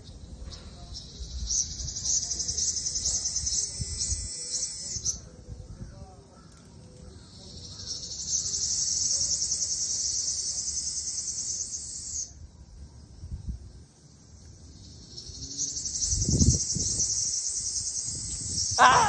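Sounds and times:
cicada buzzing: 14.8s - 19.0s.

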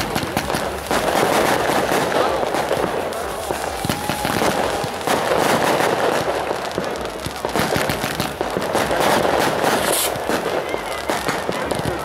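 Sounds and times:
firework fountain crackling hiss: 0.0s - 12.0s.

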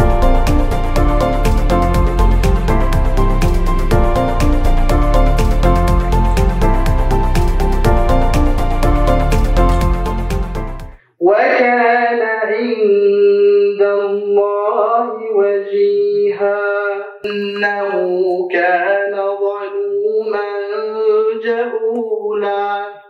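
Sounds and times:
man chanting recitation: 11.1s - 23.0s.

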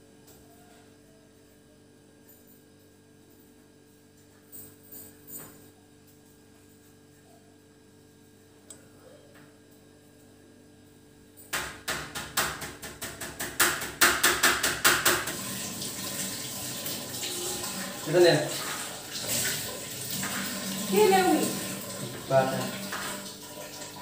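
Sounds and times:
knife chopping on plastic board: 11.6s - 15.2s.

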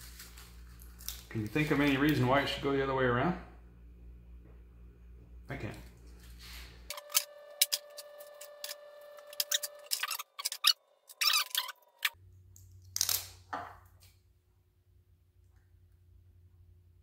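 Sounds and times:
hook-and-loop tape tearing: 9.4s - 13.5s
clicks and snips of cutting tape: 11.2s - 13.4s.

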